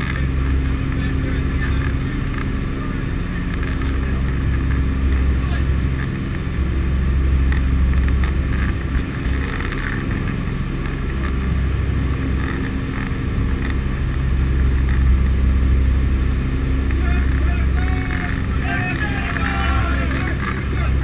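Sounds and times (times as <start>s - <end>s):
aircraft engines droning: 0.0s - 21.0s.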